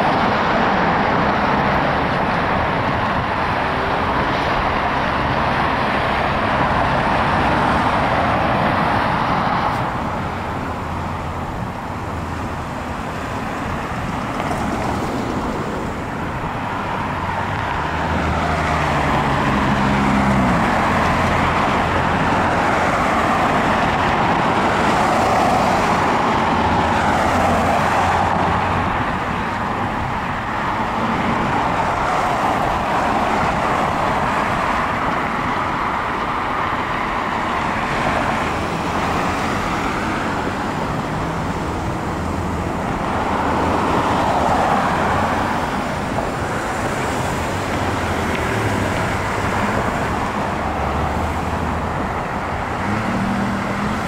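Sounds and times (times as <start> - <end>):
vehicles driving past: 0.0 - 54.0
vehicle engine pulling away: 52.7 - 54.0.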